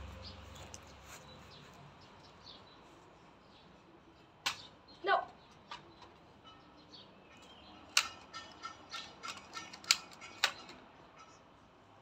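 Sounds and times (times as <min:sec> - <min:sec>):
plastic toy blaster clicks: 0:09.2 - 0:10.7.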